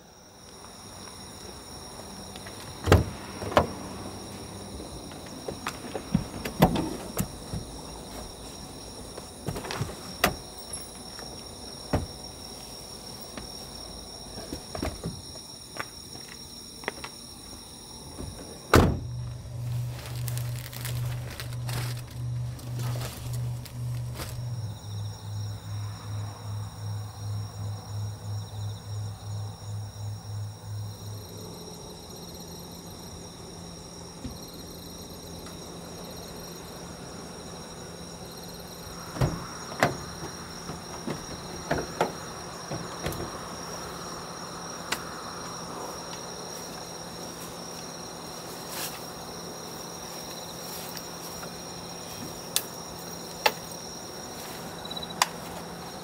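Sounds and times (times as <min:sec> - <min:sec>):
crickets chirring: 0:00.0 - 0:56.0
low pulsing drone: 0:18.9 - 0:46.4.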